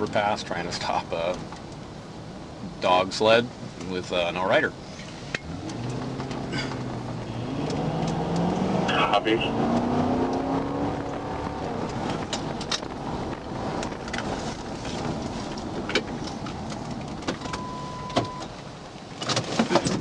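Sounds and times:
car engine: 0.0s - 20.0s
road and tyre noise: 0.0s - 20.0s
steady beep: 17.5s - 18.5s.

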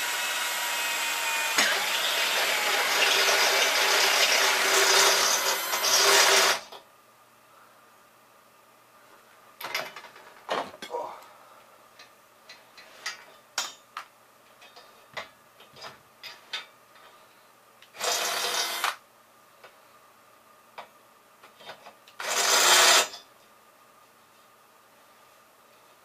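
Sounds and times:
cordless drill driving bolts: 0.0s - 6.7s, 18.0s - 19.0s, 22.2s - 23.1s.

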